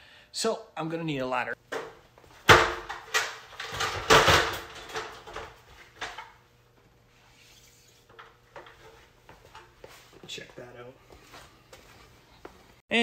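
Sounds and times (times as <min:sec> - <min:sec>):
ladder clattering: 0:01.7 - 0:06.4.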